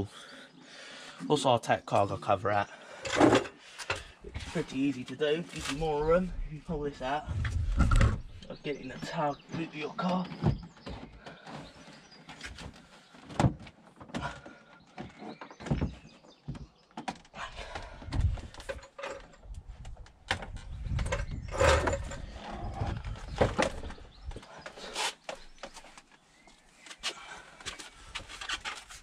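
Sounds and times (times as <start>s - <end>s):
heavy thuds: 5.7s - 9.2s.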